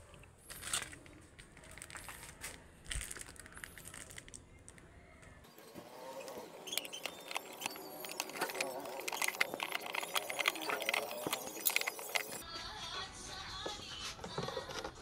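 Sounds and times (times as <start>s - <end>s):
plastic wrapping crinkling: 0.4s - 4.8s, 6.7s - 12.4s.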